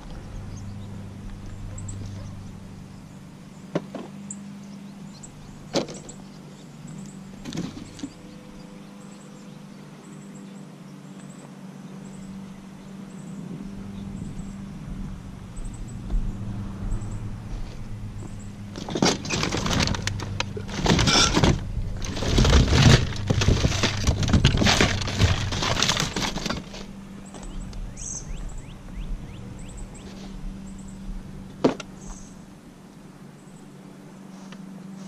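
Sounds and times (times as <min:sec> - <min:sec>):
low steady hum: 0:00.0 - 0:35.0
items rustling and clattering in box: 0:07.4 - 0:08.2, 0:18.7 - 0:27.5.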